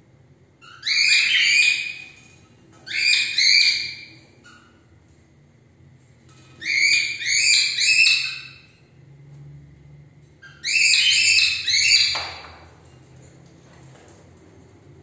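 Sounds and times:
cockatiels shrill calls: 0.6 - 2.2, 2.8 - 4.7, 6.6 - 8.7, 10.4 - 12.4.

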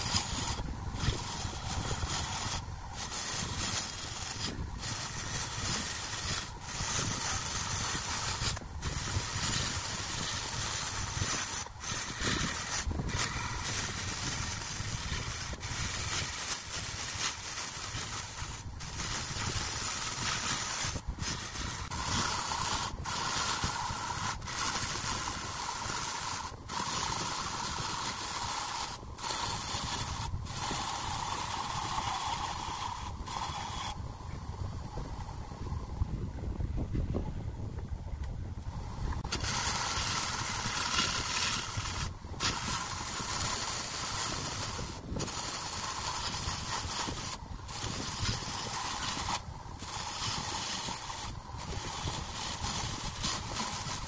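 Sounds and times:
wood lathe cutting spinning wood: 0.0 - 34.0, 38.8 - 54.0.

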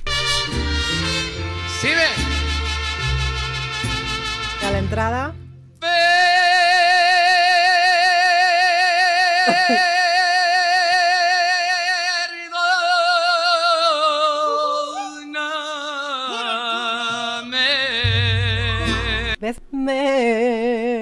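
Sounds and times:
man singing with vibrato: 5.8 - 21.0.

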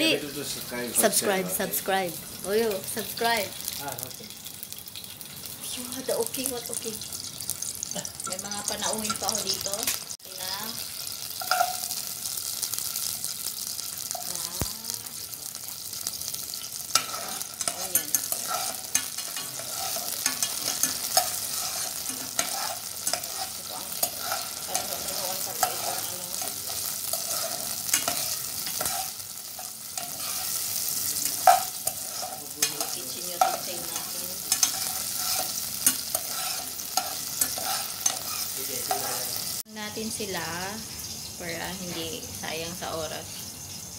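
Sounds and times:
garlic sizzling in oil: 0.0 - 43.9
utensil clicking against pan: 16.9 - 30.6, 31.2 - 39.1.

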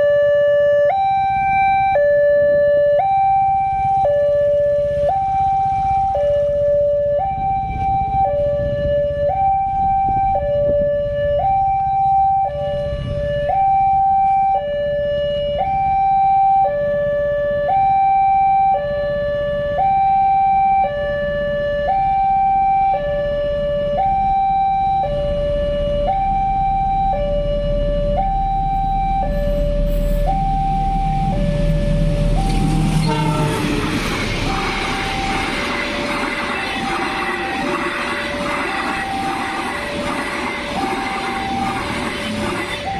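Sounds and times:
level crossing two-tone alarm: 0.0 - 42.9
low rumble: 25.3 - 42.9.

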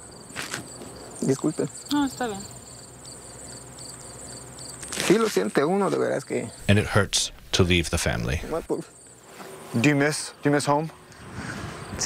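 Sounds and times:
field insects chirping: 0.0 - 12.0
man speaking: 6.6 - 8.8.

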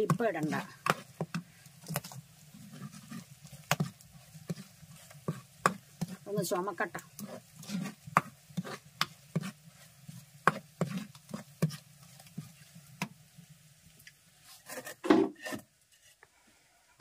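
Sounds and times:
ladle scraping and knocking clay pot: 0.0 - 6.3, 7.0 - 13.1.

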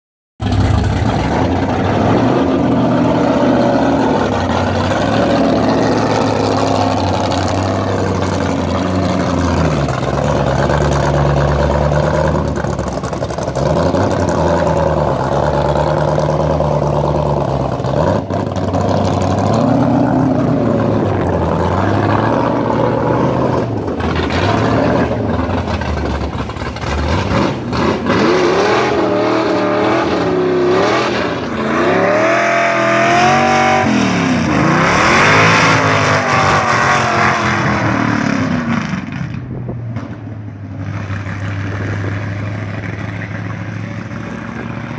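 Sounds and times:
car engine revving: 0.4 - 44.9
car accelerating through gears: 13.5 - 39.4.

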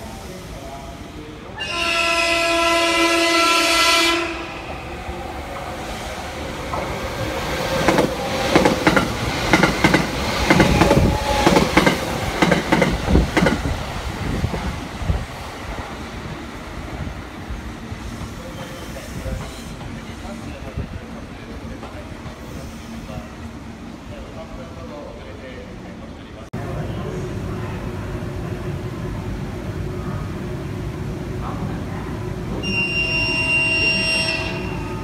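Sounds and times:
train horn blast: 1.6 - 4.7, 32.6 - 35.0
train wheels clickety-clack: 7.7 - 13.8, 18.0 - 21.0, 21.7 - 22.8.

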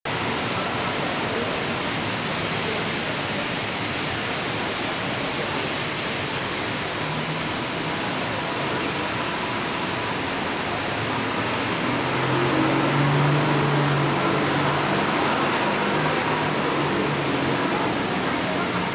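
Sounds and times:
heavy rain on street: 0.1 - 18.9
vehicle engine hum: 10.9 - 18.9.

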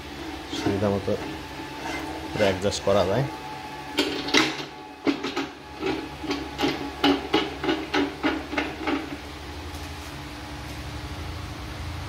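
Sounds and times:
steady low hum: 0.0 - 12.0
metal knocks and clacks: 4.0 - 9.2.

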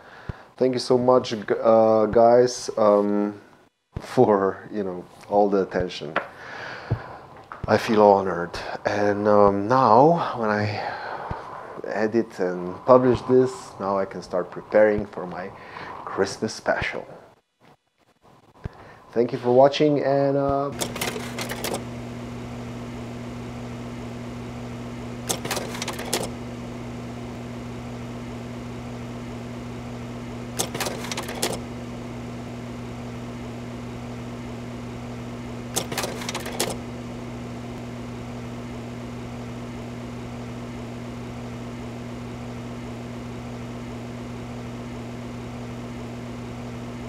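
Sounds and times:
low electrical hum: 0.0 - 17.4, 18.2 - 47.0
rapid clicks clatter: 20.7 - 21.8, 25.2 - 26.4, 30.6 - 31.7, 35.7 - 36.8.

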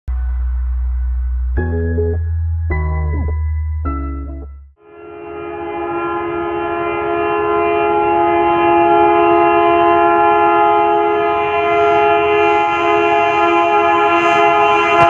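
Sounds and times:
locomotive air horn blast: 4.8 - 15.0.

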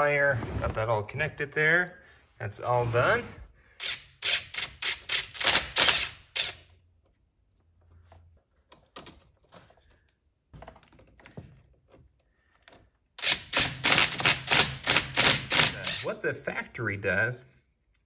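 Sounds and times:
impact driver bursts: 3.8 - 6.7, 13.2 - 16.1.

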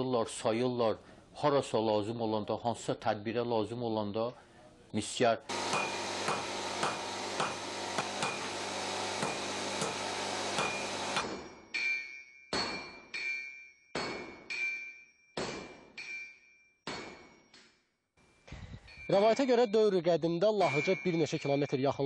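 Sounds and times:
workshop hum: 5.4 - 11.5
hammer striking iron on anvil: 5.5 - 17.8.

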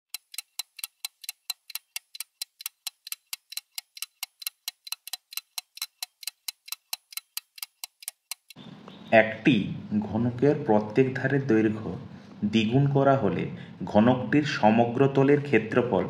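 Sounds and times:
clock-like ticking: 0.1 - 8.6.

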